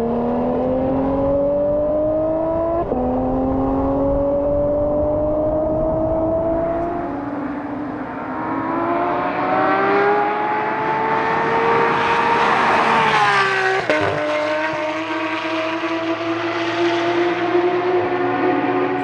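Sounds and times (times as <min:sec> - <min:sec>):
car engine accelerating: 0:00.0 - 0:19.0.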